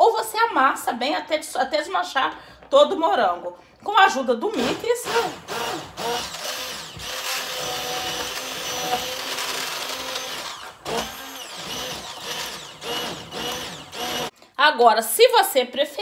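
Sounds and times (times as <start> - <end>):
immersion blender motor whine: 5.0 - 14.3.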